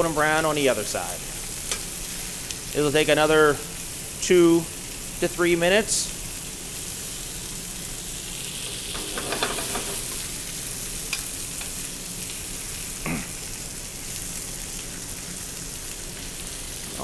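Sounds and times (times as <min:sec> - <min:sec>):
chicken sizzling in hot oil: 0:00.0 - 0:17.0.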